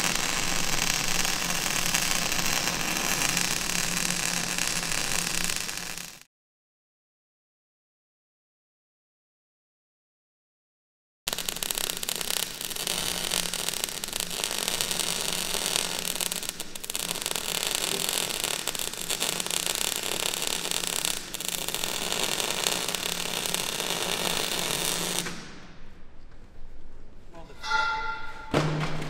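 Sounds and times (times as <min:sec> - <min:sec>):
welding arc crackling: 0:00.0 - 0:06.3, 0:11.3 - 0:25.5.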